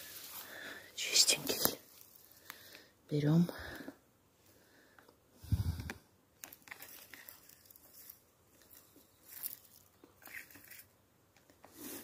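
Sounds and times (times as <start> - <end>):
rustling of forest litter: 0.0 - 2.8, 6.4 - 10.9.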